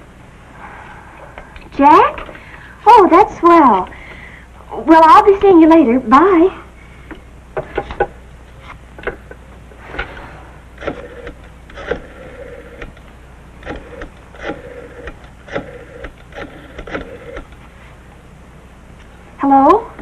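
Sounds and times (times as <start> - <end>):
rotary dial clicking: 10.8 - 17.6.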